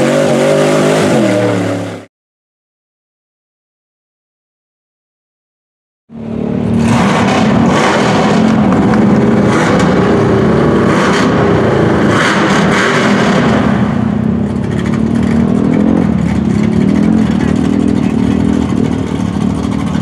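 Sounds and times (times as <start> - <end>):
truck engine revving: 0.0 - 2.1, 6.1 - 20.0.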